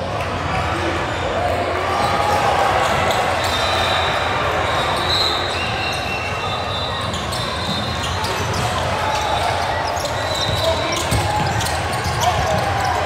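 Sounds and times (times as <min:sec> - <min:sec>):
echoing hubbub of voices: 0:00.0 - 0:13.0
basketball bouncing on court: 0:07.1 - 0:13.0.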